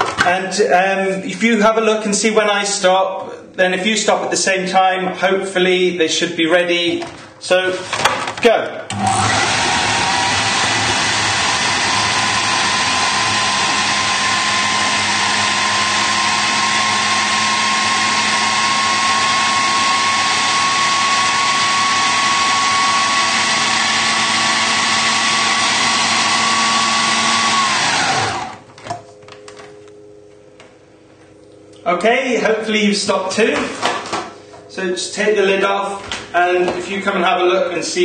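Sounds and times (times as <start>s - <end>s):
food processor motor whining: 8.9s - 28.7s.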